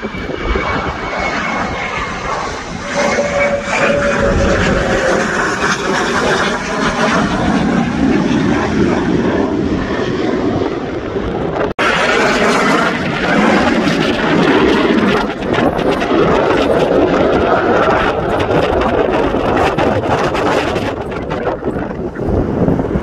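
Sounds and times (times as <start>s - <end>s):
jet engine roar: 0.0s - 23.0s.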